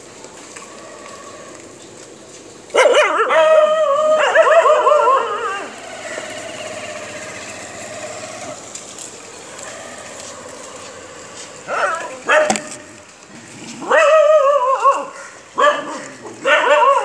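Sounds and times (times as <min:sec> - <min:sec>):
puppy barks: 0:02.7 - 0:05.8, 0:11.7 - 0:12.9, 0:13.8 - 0:17.0.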